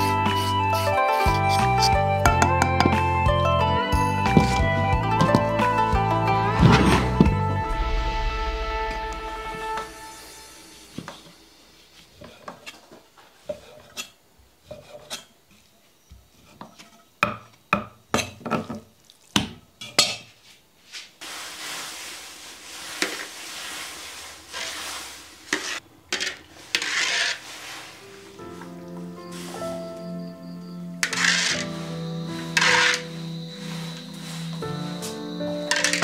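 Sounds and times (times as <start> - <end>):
wire skimmer scraping a wok: 0.0 - 2.0, 21.2 - 28.6, 31.0 - 35.0, 35.7 - 36.0.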